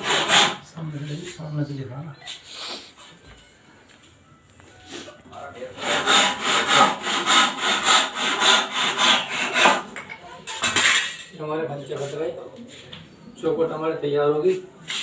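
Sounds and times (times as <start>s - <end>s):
hand saw cutting wood: 0.0s - 0.6s, 5.8s - 9.9s.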